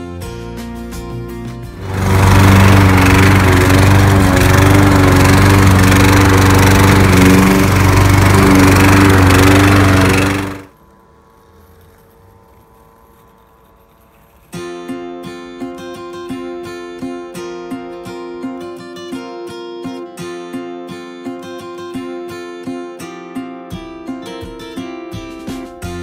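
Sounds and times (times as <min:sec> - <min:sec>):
lawn mower engine running: 0:01.7 - 0:10.8
robotic mower humming: 0:01.7 - 0:14.5.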